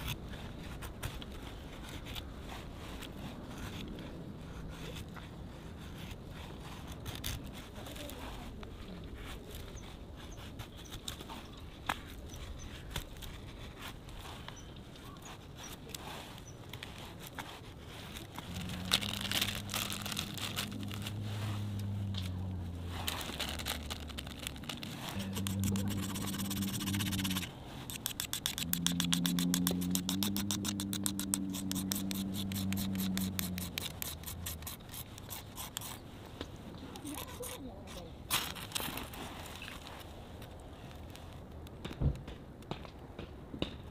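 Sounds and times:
knife scraping twine fibres: 0:00.0 - 0:41.4.

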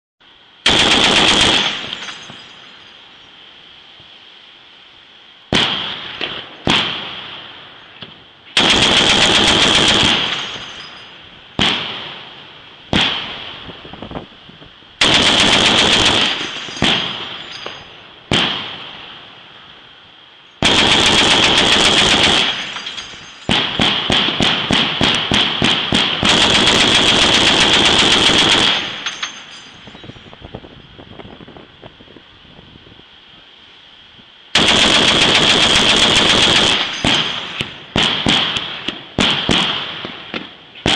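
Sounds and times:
heavy automatic weapon bursts: 0:00.6 - 0:02.4, 0:08.6 - 0:11.8, 0:15.0 - 0:17.8, 0:20.6 - 0:29.7, 0:34.6 - 0:38.6
single gunshots ringing: 0:05.5 - 0:07.2, 0:16.0 - 0:17.6, 0:18.3 - 0:18.9.

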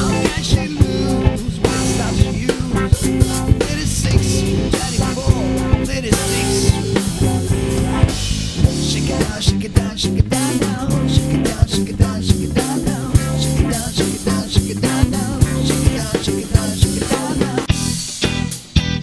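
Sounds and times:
bass guitar: 0:00.0 - 0:19.0
drum kit beat: 0:00.0 - 0:19.0
electric guitar: 0:00.0 - 0:19.0.

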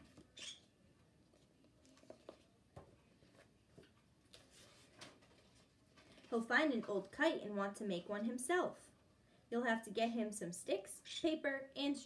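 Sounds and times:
book pages turning: 0:01.2 - 0:07.2.

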